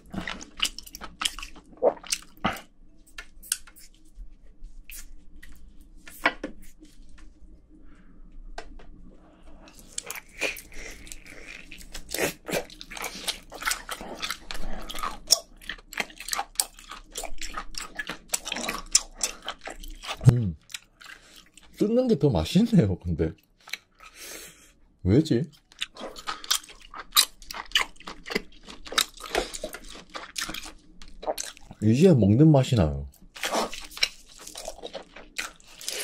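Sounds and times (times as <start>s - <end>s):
person chewing: 0.0s - 4.1s, 9.6s - 21.8s, 23.6s - 24.2s, 25.5s - 31.8s, 33.1s - 36.0s.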